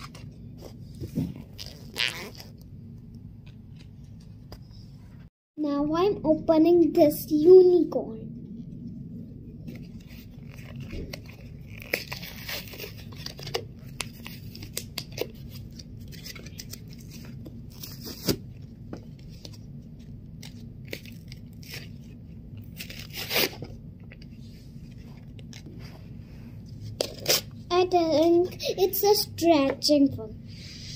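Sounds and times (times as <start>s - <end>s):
plastic wrapper ripping and crinkling: 9.9s - 18.4s, 20.4s - 23.7s.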